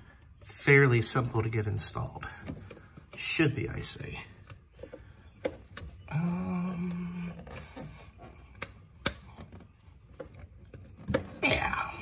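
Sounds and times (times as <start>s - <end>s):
man humming: 6.1s - 7.8s.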